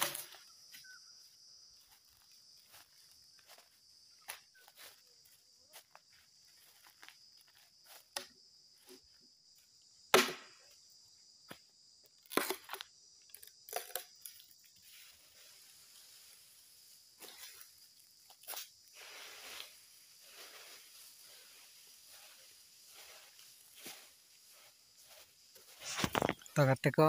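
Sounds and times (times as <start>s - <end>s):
insects buzzing: 0.0s - 27.0s
dry leaves crackling underfoot: 1.8s - 8.0s, 14.8s - 26.6s
hatchet chopping bamboo: 10.1s - 10.6s, 12.2s - 12.8s.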